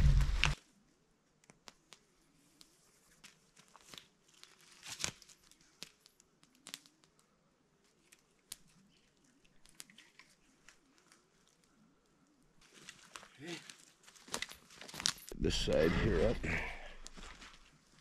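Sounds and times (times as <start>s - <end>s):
rustles and clicks of cord and sticks: 1.4s - 15.4s, 17.0s - 18.0s.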